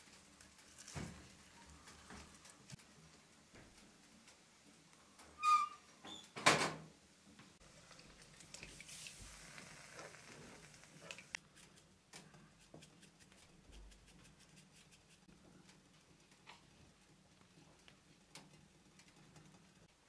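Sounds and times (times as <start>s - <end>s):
stove door squeaking: 5.3s - 6.6s
metal door clanking shut: 6.2s - 6.9s.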